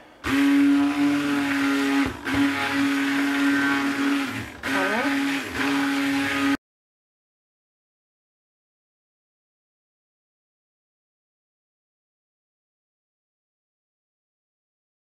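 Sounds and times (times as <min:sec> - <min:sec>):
stick blender whining: 0:00.0 - 0:06.6.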